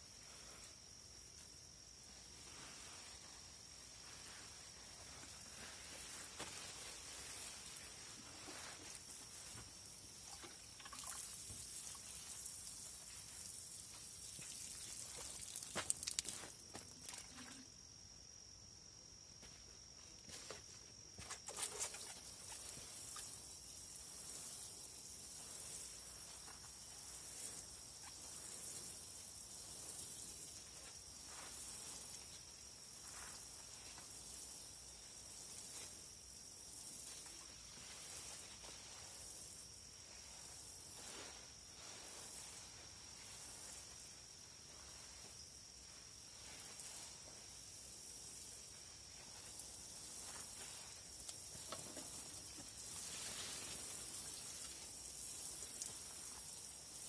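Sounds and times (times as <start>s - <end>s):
water sprinkling onto soil: 4.9s - 17.7s, 21.4s - 45.4s, 46.2s - 57.0s.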